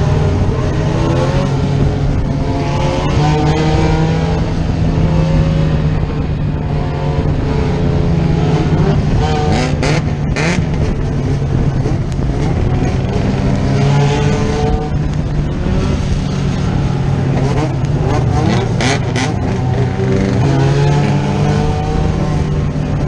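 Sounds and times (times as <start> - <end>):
other car engines: 0.0 - 23.0
race car engine running: 0.0 - 23.0.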